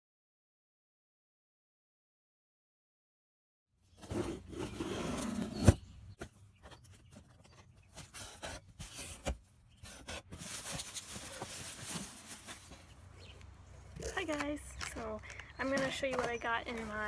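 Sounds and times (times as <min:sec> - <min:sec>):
plastic packaging rustling: 0:09.9 - 0:13.1.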